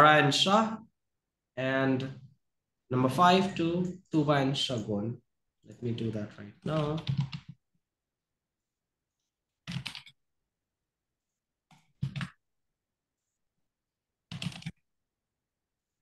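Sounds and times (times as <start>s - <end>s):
computer keyboard typing: 6.6s - 7.6s, 9.6s - 10.2s, 11.7s - 12.4s, 14.3s - 14.8s.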